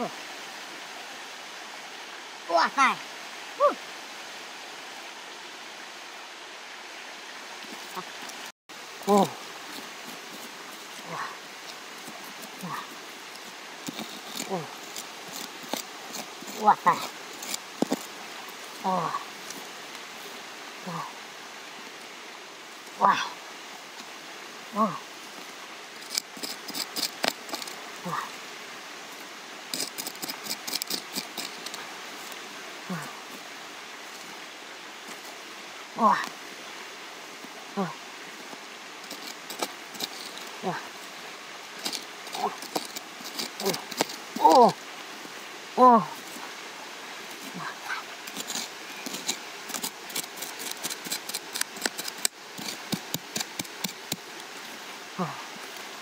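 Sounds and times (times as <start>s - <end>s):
hand pick digging in dry soil: 9.0s - 20.1s, 25.4s - 28.3s, 29.1s - 33.4s, 38.4s - 45.4s, 47.2s - 54.8s
clods and grit falling: 11.7s - 18.1s, 39.0s - 40.6s, 41.7s - 44.8s.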